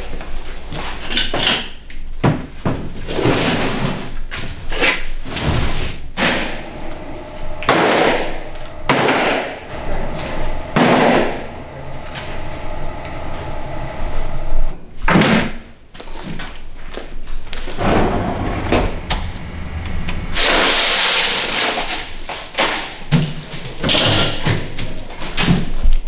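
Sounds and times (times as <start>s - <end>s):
faint steady hum: 6.2s - 14.9s, 17.6s - 22.2s.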